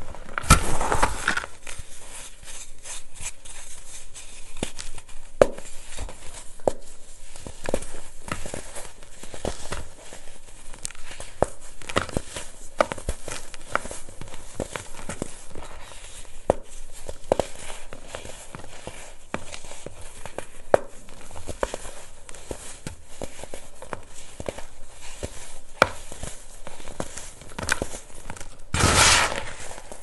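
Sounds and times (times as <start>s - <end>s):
baking soda crunching: 28.7s - 30.0s
powder sifting hiss: 28.7s - 30.0s.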